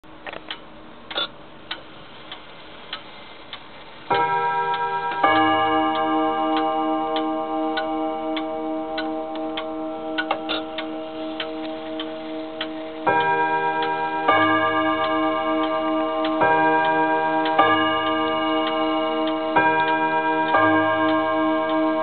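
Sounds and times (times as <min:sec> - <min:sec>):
wall clock ticking: 0:00.3 - 0:22.0
clock striking with ringing tone: 0:04.1 - 0:22.0.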